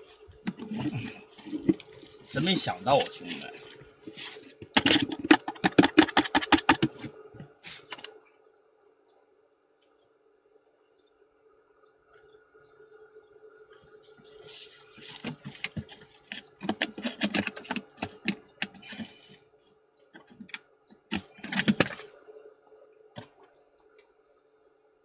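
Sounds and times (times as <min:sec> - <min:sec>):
hands rustling fishing gear: 0:00.0 - 0:08.2
faint steady hum: 0:00.0 - 0:25.0.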